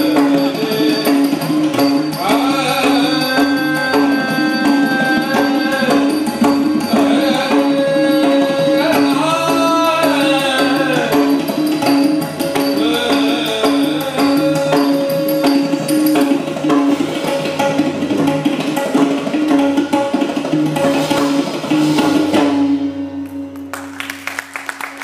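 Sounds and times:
tabla strokes: 0.0 - 25.0
scattered applause: 23.6 - 25.0.

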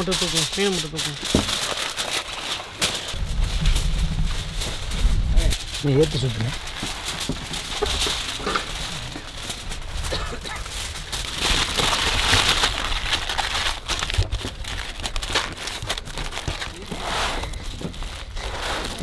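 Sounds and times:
foil crinkling: 0.0 - 19.0.

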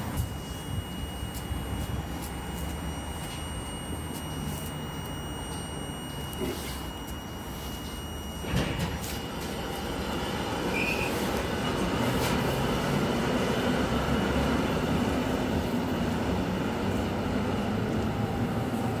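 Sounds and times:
electric train hum: 0.0 - 19.0
brief high squeak: 10.7 - 11.4.

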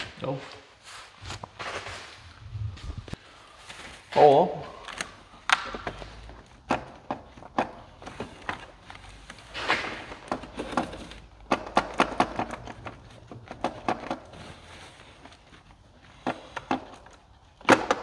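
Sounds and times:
hand tools knocking car parts: 10.2 - 14.3.

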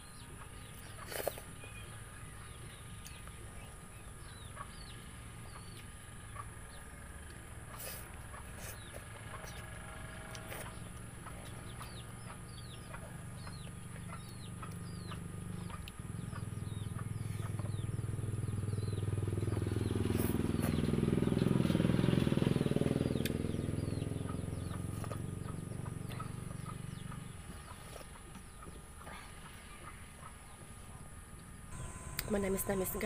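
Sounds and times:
engine passing by: 4.3 - 28.2
short high chirps: 31.8 - 33.0.

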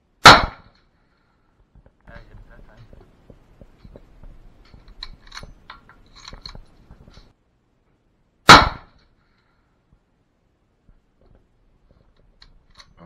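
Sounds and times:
loud rifle shot: 0.2 - 0.7, 8.4 - 9.0
metallic clicks of rifle handling: 4.6 - 7.3, 12.2 - 13.0.

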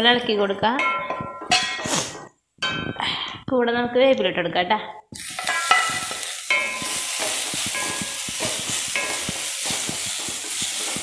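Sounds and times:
onions sizzling in hot oil: 5.2 - 11.0
wooden spatula scraping pan: 5.3 - 11.0.

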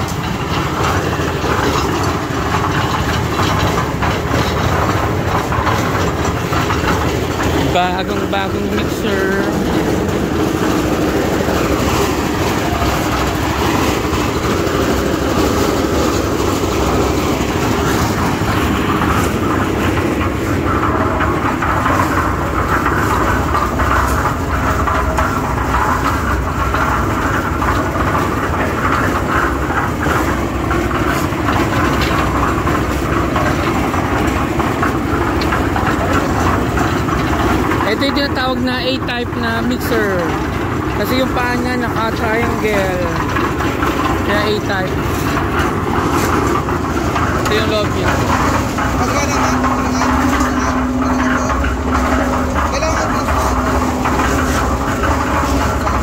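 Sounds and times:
cement mixer engine running: 0.0 - 56.0
mixer drum rattling: 0.0 - 56.0.

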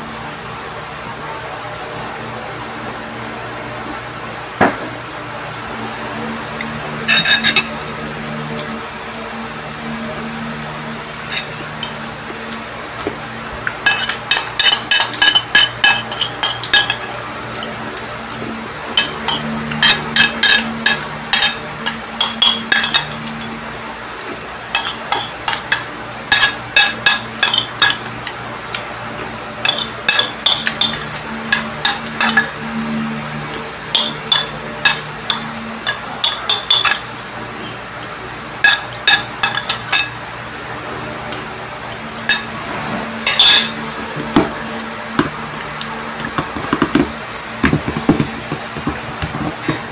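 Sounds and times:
metal spoon clinking on bowl: 7.1 - 7.7, 13.9 - 17.2, 19.0 - 23.5, 24.8 - 28.1, 29.6 - 32.6, 33.9 - 37.1, 38.6 - 40.1, 42.3 - 42.5, 43.3 - 43.8.

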